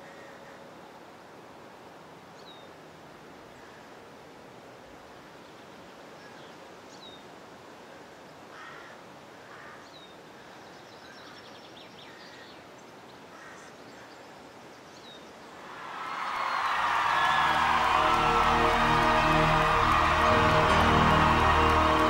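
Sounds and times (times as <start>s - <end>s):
outdoor background hiss: 0.0s - 22.0s
music: 16.6s - 22.0s.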